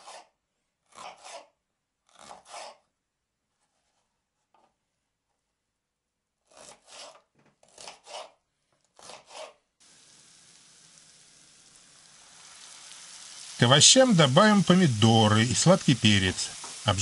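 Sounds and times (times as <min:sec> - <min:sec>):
knife slicing on wooden board: 0:00.9 - 0:01.5, 0:06.5 - 0:08.4, 0:09.0 - 0:09.6.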